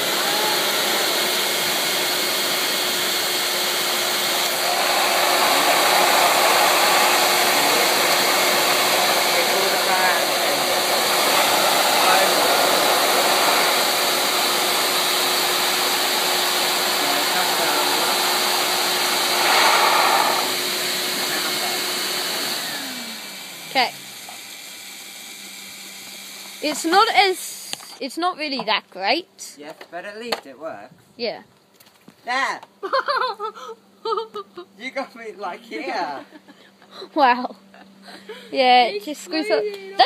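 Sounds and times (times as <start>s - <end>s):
air dryer blowing air: 0.0s - 27.9s.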